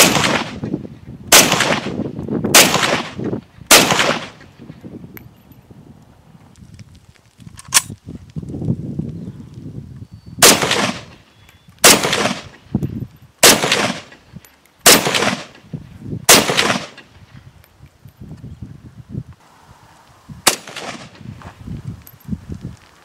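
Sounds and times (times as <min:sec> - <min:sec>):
rifle shots with echo: 0:00.0 - 0:00.7, 0:01.3 - 0:04.5, 0:10.4 - 0:11.2, 0:11.8 - 0:12.6, 0:13.4 - 0:15.6, 0:16.3 - 0:17.1, 0:20.4 - 0:21.2.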